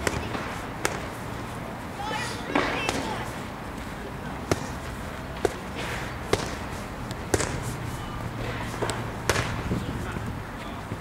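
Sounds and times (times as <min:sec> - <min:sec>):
boxing gloves smacking mitts: 0:00.0 - 0:01.3, 0:02.5 - 0:03.3, 0:04.4 - 0:09.9.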